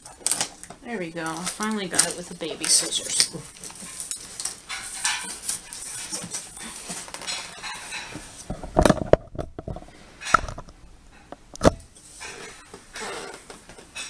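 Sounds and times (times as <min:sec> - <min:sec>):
cardboard rustling and scraping: 0:01.4 - 0:09.9.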